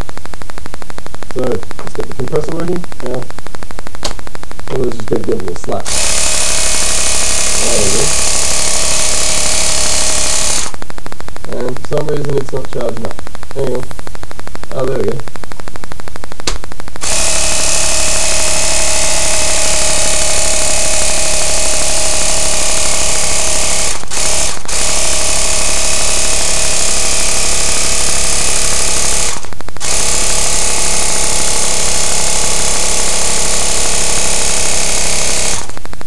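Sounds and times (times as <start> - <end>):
air compressor running: 5.8 - 10.9, 17.0 - 36.0.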